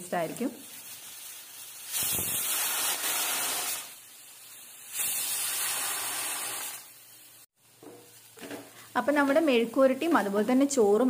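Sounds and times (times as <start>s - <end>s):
pressure cooker whistling steam: 1.7s - 4.0s, 4.9s - 6.9s.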